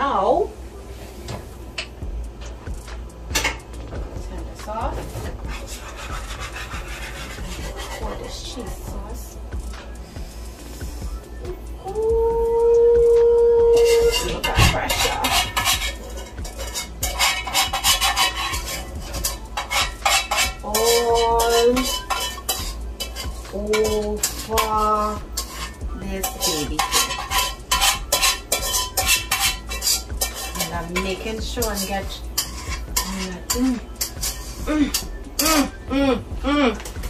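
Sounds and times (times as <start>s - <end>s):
spoon scraping and clinking dish: 5.2s - 8.4s, 13.7s - 35.8s.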